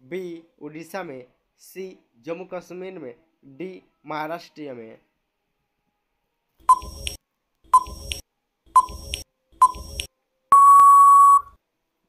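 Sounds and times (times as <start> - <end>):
long steady beep: 6.7 - 7.2, 8.8 - 11.6
short countdown beeps: 6.7 - 7.2, 7.8 - 8.2, 8.8 - 11.5.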